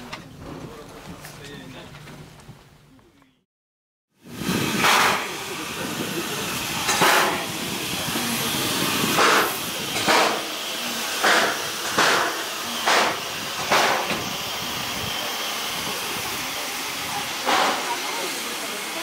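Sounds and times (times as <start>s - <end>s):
steady steam hiss: 4.2s - 19.0s
steam locomotive chuffing: 4.2s - 19.0s.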